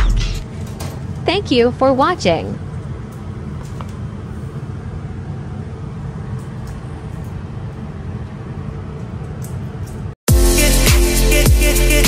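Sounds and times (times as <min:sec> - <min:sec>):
low mechanical rumble: 0:00.0 - 0:10.2
electronic music with heavy bass: 0:10.3 - 0:12.0.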